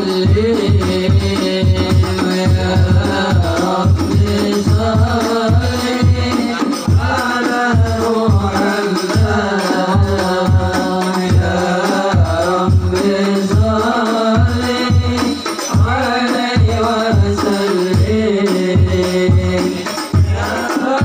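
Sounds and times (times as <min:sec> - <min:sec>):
deep bass drum beat: 0:00.0 - 0:21.0
frame drums: 0:00.0 - 0:21.0
men singing a devotional chant: 0:00.0 - 0:21.0.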